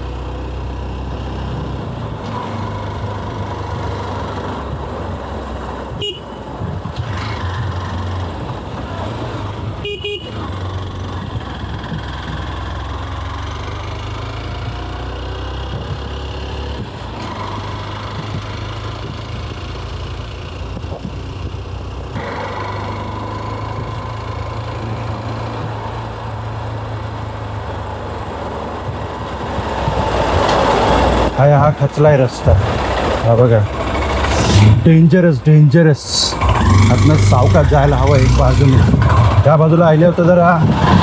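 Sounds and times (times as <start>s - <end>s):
road noise: 0.0s - 41.0s
wind noise: 37.7s - 39.5s, 40.4s - 41.0s.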